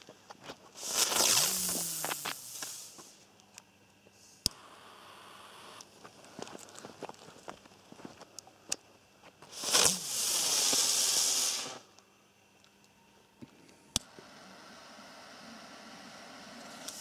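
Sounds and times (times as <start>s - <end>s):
firework hissing: 0.7s - 3.2s, 4.2s - 6.1s, 9.4s - 12.0s, 14.0s - 17.0s
lighter flame hissing: 0.8s - 3.2s, 4.2s - 6.0s, 9.4s - 12.1s, 13.9s - 17.0s.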